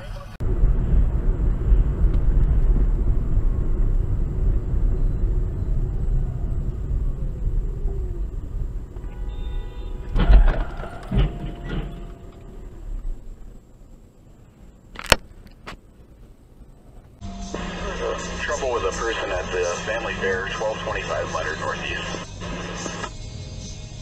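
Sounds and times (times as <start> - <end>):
car road and engine rumble: 0.0 - 24.0
vehicle crash impacts: 0.4 - 13.8.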